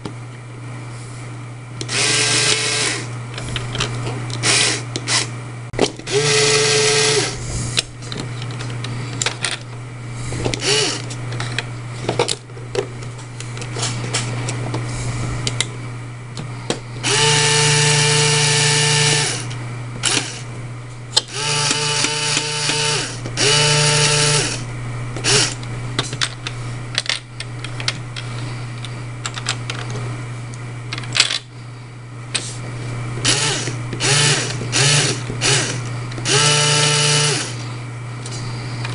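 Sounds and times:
motor whine: 0.9 - 38.9
small electric motor humming: 1.8 - 3.7, 4.4 - 5.3, 6.0 - 7.8, 10.3 - 11.2, 17.0 - 20.5, 21.2 - 25.6, 33.2 - 38.8.

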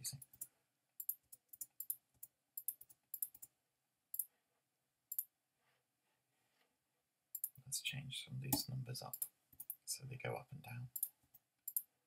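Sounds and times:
keyboard and mouse clicks: 0.1 - 3.5, 7.4 - 7.6, 8.6 - 9.8, 10.9 - 11.9.

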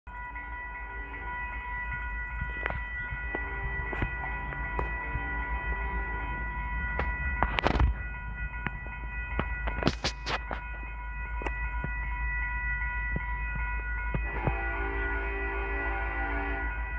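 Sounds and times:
high-pitched ringing: 0.1 - 16.9
train rumble: 0.1 - 16.9
crackle: 6.1 - 12.1.

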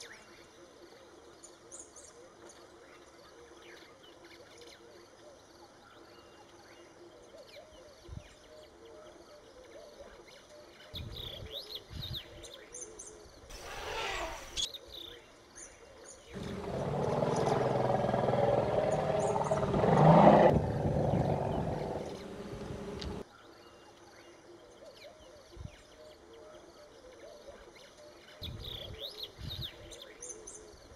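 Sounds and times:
birds chirping: 16.4 - 23.2
elephant rumbling roar: 16.4 - 23.2.

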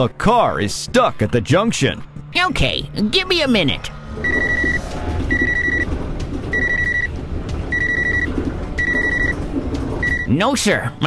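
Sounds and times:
cordless phone ringing: 7.7 - 9.4.

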